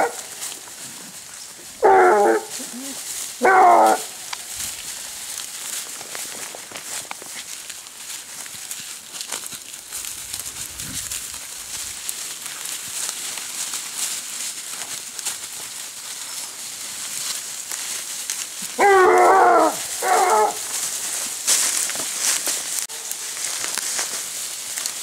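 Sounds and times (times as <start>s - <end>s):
hound baying: 0.0s - 0.4s, 1.8s - 4.2s, 18.7s - 20.8s
rustling and snapping of dry leaves: 0.0s - 25.0s.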